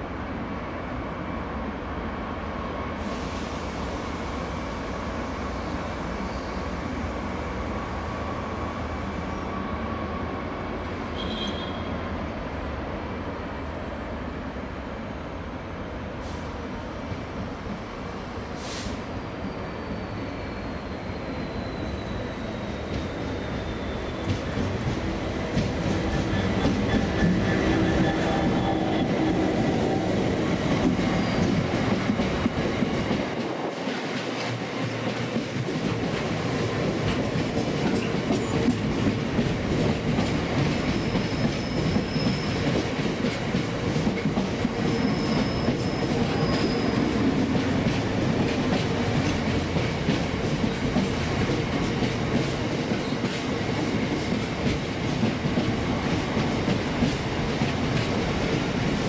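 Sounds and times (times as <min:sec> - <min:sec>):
high wheel squeals: 0:19.4 - 0:24.5, 0:31.0 - 0:31.7, 0:41.0 - 0:42.7, 0:44.8 - 0:47.2
train wheels clicking over rails: 0:22.7 - 0:59.0.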